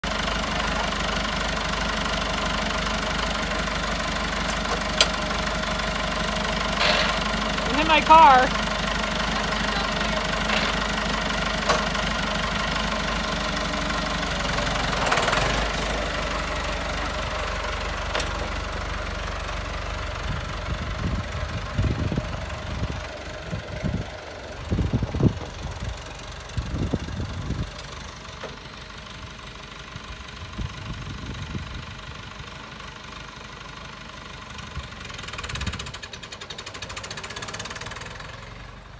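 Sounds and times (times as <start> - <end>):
tractor engine running: 0.0 - 38.9.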